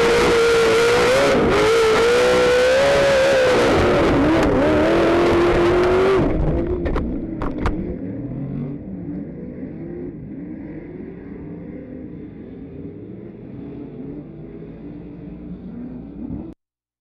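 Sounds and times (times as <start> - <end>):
racing truck engine revving: 0.0 - 16.6.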